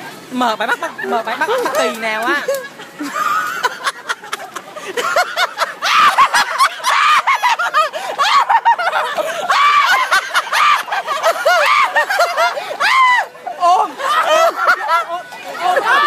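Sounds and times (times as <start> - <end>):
people laughing: 0.7 - 16.0
people shouting: 5.7 - 16.0.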